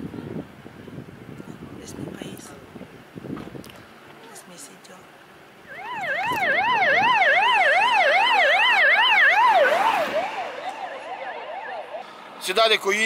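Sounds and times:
emergency siren yelping: 0:05.6 - 0:12.5.

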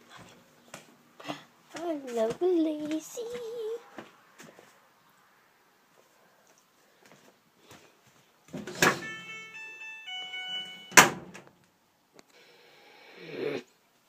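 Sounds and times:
dryer door clunk: 0:08.6 - 0:09.1, 0:10.9 - 0:11.4
electronic beeping tune: 0:09.0 - 0:11.3.

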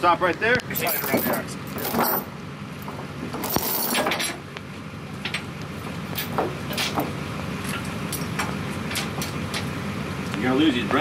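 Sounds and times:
engine idling: 0:00.0 - 0:11.0
tow chain clinking and rattling: 0:00.7 - 0:04.4, 0:06.1 - 0:09.7.

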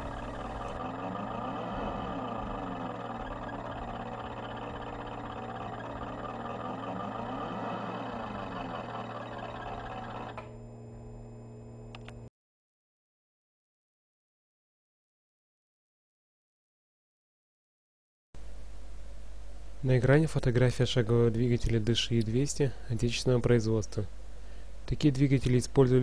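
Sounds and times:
stepper motor whining: 0:00.0 - 0:10.8
steady low hum: 0:00.0 - 0:12.3.

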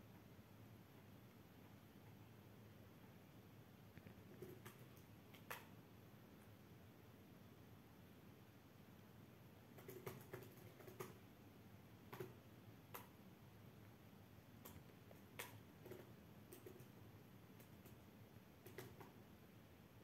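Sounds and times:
faint sharp clicks and ticks: 0:03.9 - 0:05.8, 0:09.7 - 0:11.2, 0:12.0 - 0:14.0, 0:14.6 - 0:19.3.

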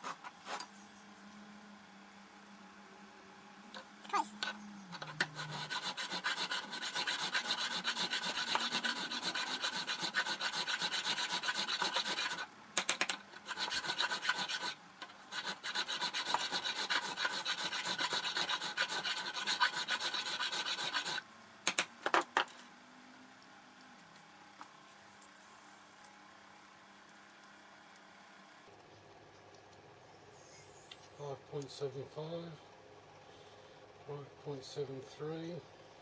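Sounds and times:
hand file rasping on metal: 0:04.9 - 0:12.5, 0:13.4 - 0:21.2.

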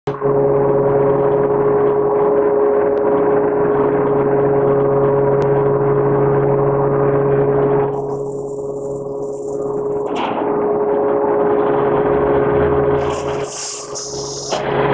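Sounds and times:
machinery hum: 0:00.1 - 0:14.9
mechanical noise: 0:04.9 - 0:14.9.

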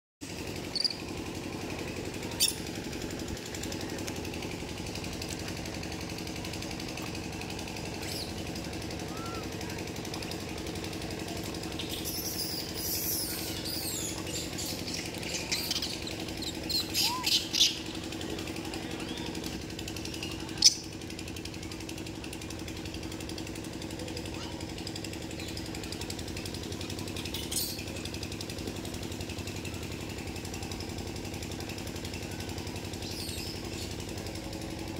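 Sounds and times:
machine drone with pulsing rattle: 0:00.2 - 0:34.9
high squeaky calls: 0:00.6 - 0:01.0, 0:02.3 - 0:02.7, 0:08.0 - 0:09.8, 0:11.7 - 0:18.0.

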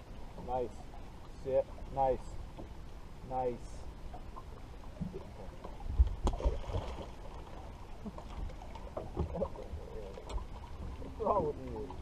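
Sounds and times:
water lapping against boat hull: 0:00.0 - 0:12.0.

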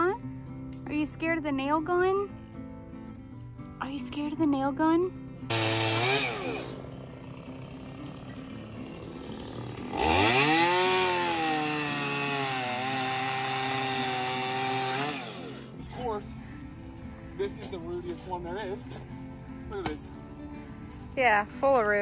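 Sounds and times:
chainsaw cutting wood: 0:05.5 - 0:15.8.

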